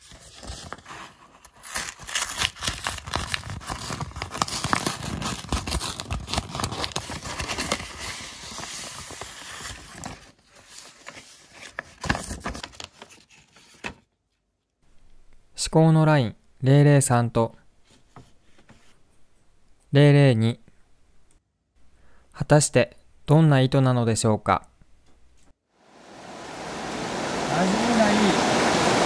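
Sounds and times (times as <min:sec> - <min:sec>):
envelope paper tearing and rustling: 0:00.0 - 0:14.1.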